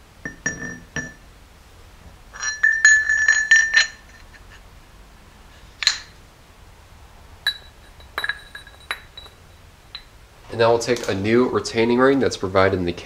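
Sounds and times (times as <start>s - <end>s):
steel gears clinking: 2.3s - 4.6s, 5.8s - 6.2s, 7.4s - 10.2s.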